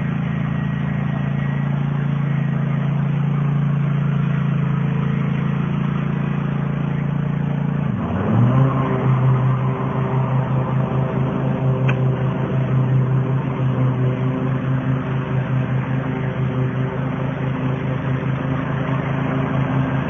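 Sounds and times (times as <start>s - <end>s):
riding lawn mower engine running: 0.0s - 20.0s
short click: 11.8s - 12.1s.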